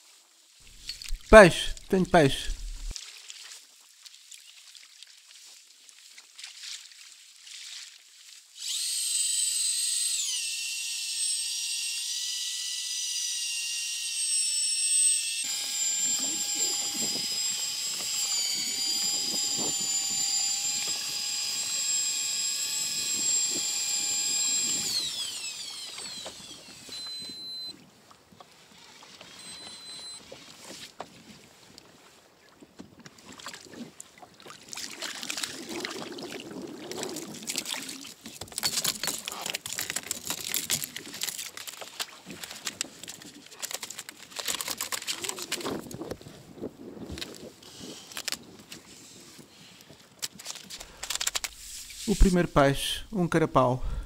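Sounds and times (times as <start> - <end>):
electric fishing reel whine: 8.6 - 27.8, 29.2 - 30.3
water splashing: 33.3 - 38.2.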